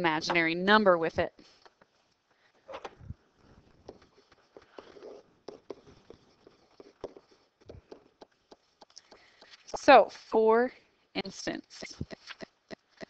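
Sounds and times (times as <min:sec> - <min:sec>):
stylus tapping and scratching: 0:03.7 - 0:10.0, 0:11.8 - 0:13.0.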